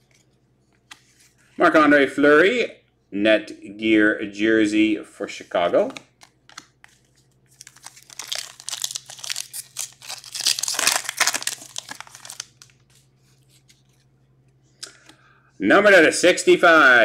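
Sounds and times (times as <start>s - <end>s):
cards being handled: 0.0s - 1.4s, 5.8s - 15.2s
foil wrapper tearing and crinkling: 7.5s - 12.9s.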